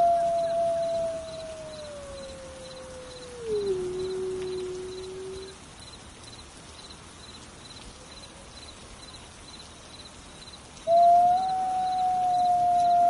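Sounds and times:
wolf howling: 0.0 - 5.6, 10.9 - 13.0
insect chirping: 0.0 - 13.0.

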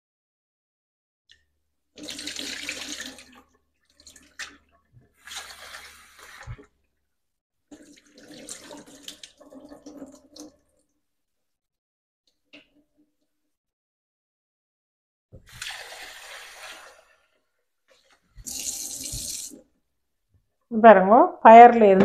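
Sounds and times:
tap water splashing into a sink: 2.0 - 6.7, 7.7 - 10.9, 15.4 - 17.0, 17.9 - 19.7.

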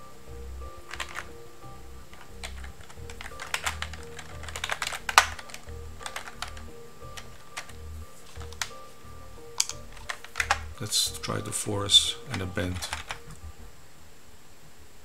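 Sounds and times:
background music with low pulse: 0.0 - 14.0
keyboard typing: 0.8 - 1.4, 2.1 - 8.8, 9.5 - 13.5.

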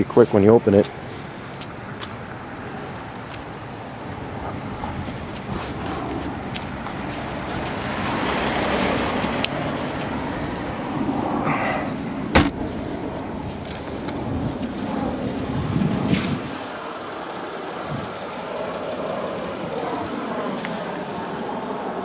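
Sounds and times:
car trunk lid slamming: 12.3 - 12.8.

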